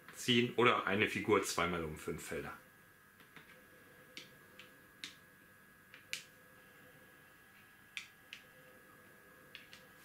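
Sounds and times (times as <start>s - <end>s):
wooden checkers clicking on board: 9.5s - 9.9s.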